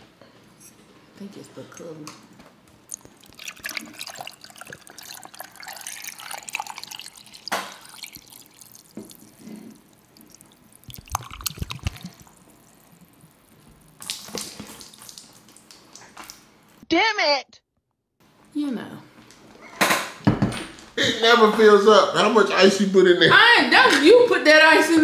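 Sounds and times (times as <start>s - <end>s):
water dripping: 2.8s - 16.8s
ice clinking in a tumbler: 2.9s - 12.4s.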